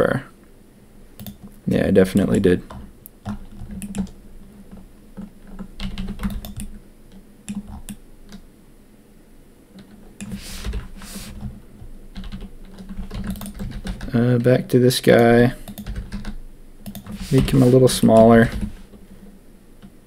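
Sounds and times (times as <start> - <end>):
computer keyboard keystrokes: 1.2 - 1.6, 2.7 - 4.2, 5.4 - 6.8, 7.5 - 8.4, 12.2 - 14.1, 15.2 - 17.2
hissing sounds: 10.2 - 11.4, 17.1 - 18.1.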